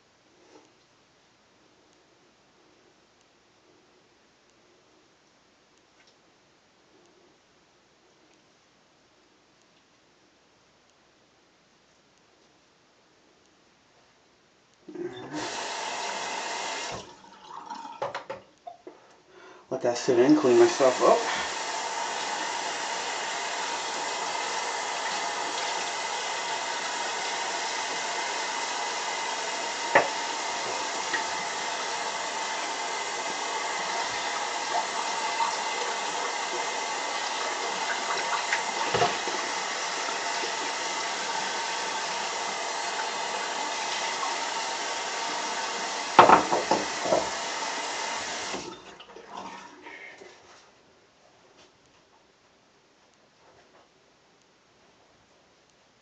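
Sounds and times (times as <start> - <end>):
sink tap running: 15.2 - 18.5, 20.0 - 49.1.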